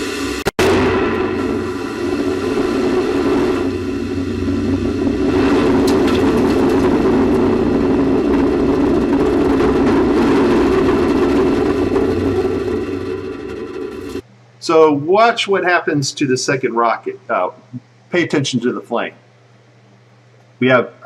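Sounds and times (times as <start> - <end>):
rocket roar: 0.0 - 14.2.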